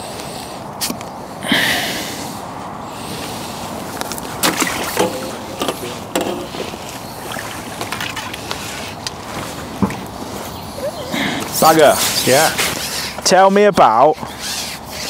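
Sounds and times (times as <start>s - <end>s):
fish splashing in water: 4.4s - 9.0s.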